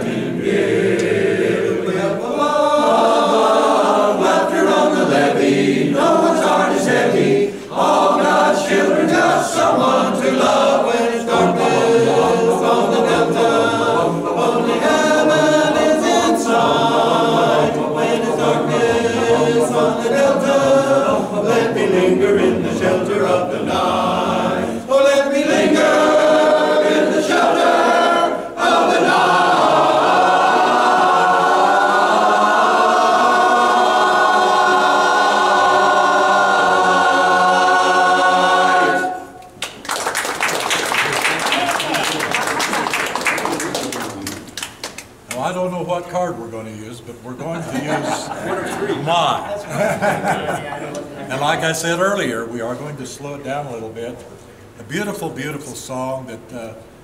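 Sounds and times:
chorus singing a cappella: 0.0s - 39.6s, 47.6s - 52.8s.

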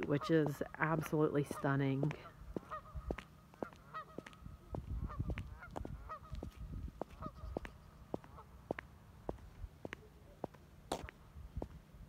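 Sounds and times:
geese honking: 0.0s - 8.7s.

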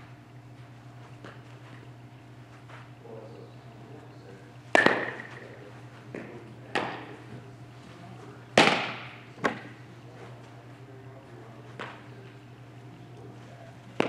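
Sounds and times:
steady low hum: 0.0s - 14.0s
baseball impacts echoing: 4.6s - 7.6s, 8.5s - 9.9s, 11.2s - 12.3s, 13.8s - 14.0s.

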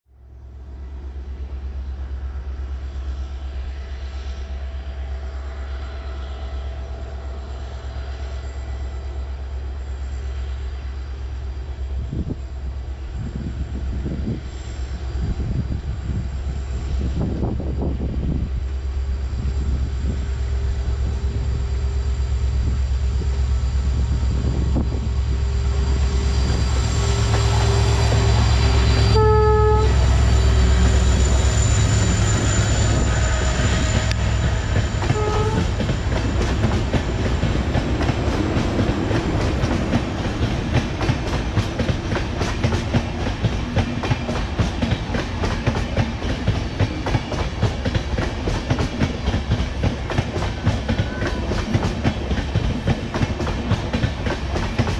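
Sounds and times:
diesel locomotive rumble: 0.2s - 54.9s
train horn: 3.0s - 11.3s, 25.3s - 36.7s, 50.5s - 51.8s
train wheels clicking over rail joints: 30.0s - 54.9s.

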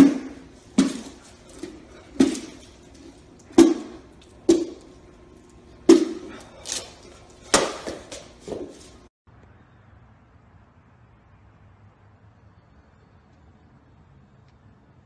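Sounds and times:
heavy thuds on pumpkin: 0.0s - 2.7s, 3.5s - 4.8s, 5.9s - 6.4s.

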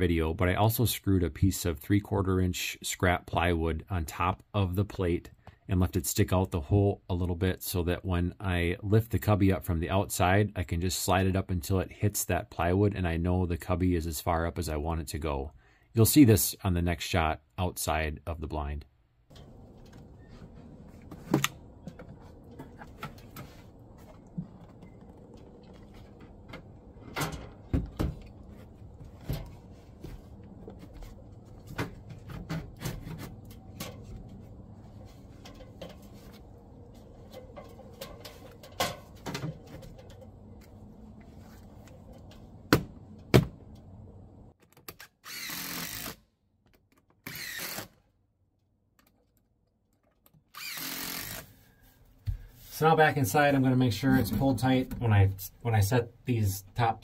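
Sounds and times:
outdoor background: 0.0s - 57.0s
cordless drill running: 45.3s - 46.2s, 47.3s - 47.9s, 50.6s - 51.5s.

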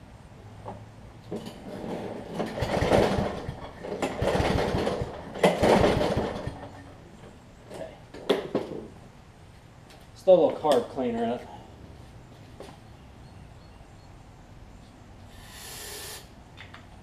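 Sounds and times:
mower engine cranking on recoil pull: 1.3s - 6.9s.

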